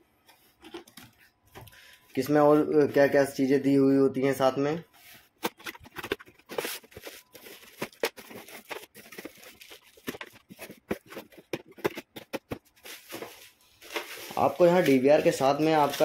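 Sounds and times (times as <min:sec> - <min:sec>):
cardboard packaging rustling: 0:05.0 - 0:16.0.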